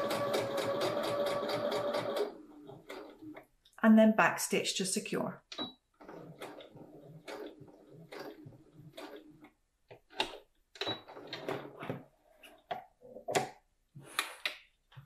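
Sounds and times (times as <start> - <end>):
sewing machine stitching: 0.0 - 3.5, 5.5 - 12.0.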